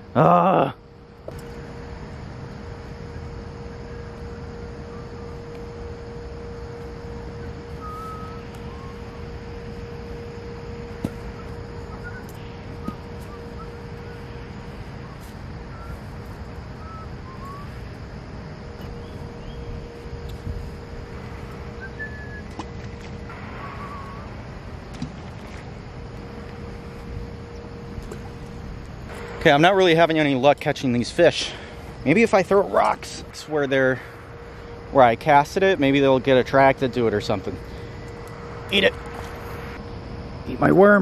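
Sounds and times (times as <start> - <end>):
constant hum: 0.0 - 41.0
faint bird chirps: 7.3 - 9.4, 11.2 - 18.0, 18.8 - 20.0, 23.3 - 24.4.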